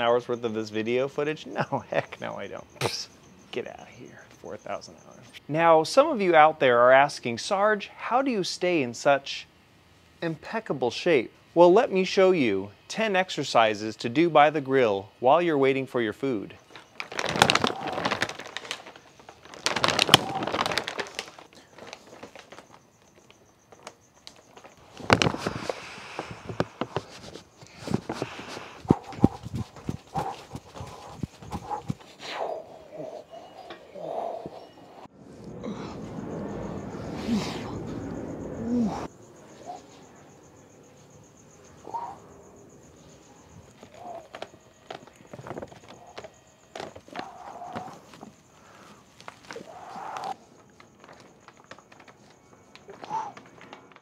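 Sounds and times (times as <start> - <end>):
crickets chirping: 0.0 - 54.0
charcoal briquettes clattering: 16.6 - 32.2, 43.7 - 54.0
paper bag rustling: 16.7 - 32.2, 43.7 - 54.0.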